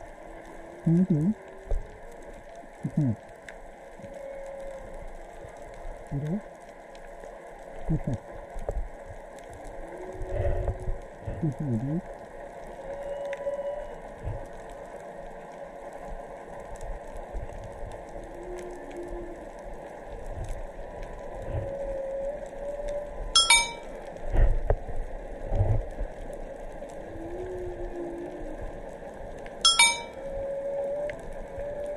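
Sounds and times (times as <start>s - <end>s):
crackling hiss of the sea: 0.0s - 31.9s
whale moaning and squealing: 0.8s - 1.7s, 4.0s - 4.9s, 12.8s - 14.5s, 27.1s - 28.7s
whale low grunts: 7.9s - 8.2s, 10.4s - 12.0s
humpback whale calls: 12.8s - 14.5s, 21.6s - 23.9s, 29.7s - 31.9s.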